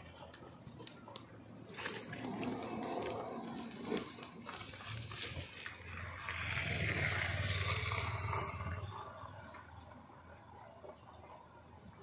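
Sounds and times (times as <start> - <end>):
motorcycle engine passing by: 2.0 - 11.0.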